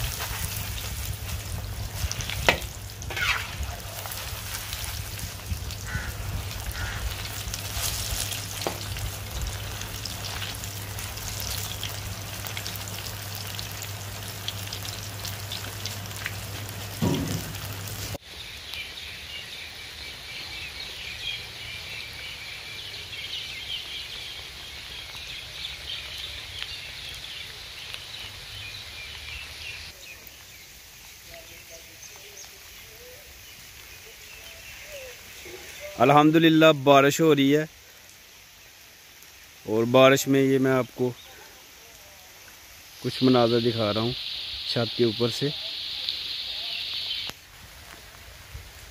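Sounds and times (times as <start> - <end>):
food deep-frying in hot oil: 0.0 - 48.9
light rain: 0.0 - 48.9
metal skimmer scraping a wok: 2.0 - 4.7
high chirping chorus: 43.0 - 47.4.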